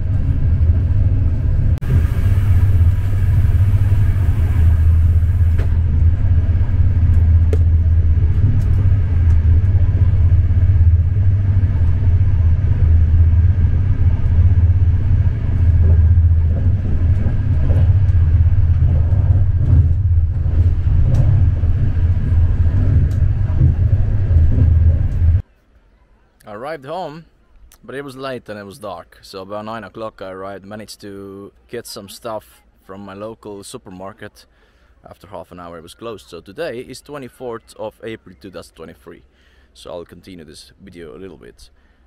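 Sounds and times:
train rumble inside carriage: 0.0 - 25.4.

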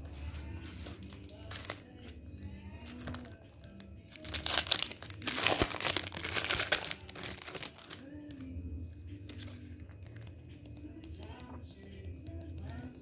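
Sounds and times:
plastic packaging crinkling: 0.1 - 1.9, 2.8 - 8.1.

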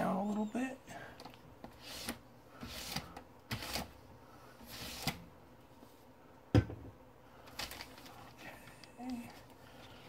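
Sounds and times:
paper rustling and sliding: 1.7 - 4.0, 4.6 - 5.2.

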